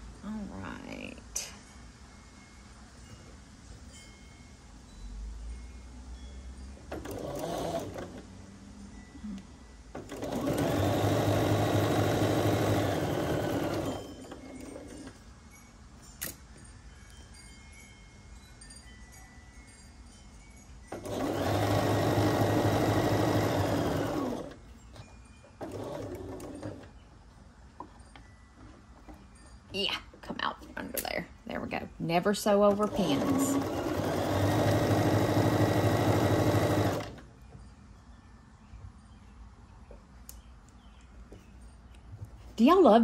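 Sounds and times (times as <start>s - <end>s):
sewing machine stitching: 6.9s - 8.2s, 10.0s - 15.1s, 20.9s - 24.6s, 25.6s - 26.9s, 32.5s - 37.2s.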